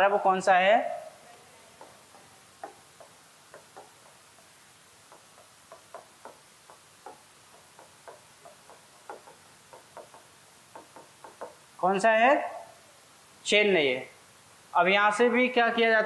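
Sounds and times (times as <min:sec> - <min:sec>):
pen tapping on a screen: 0:01.8 - 0:04.2, 0:05.1 - 0:11.6.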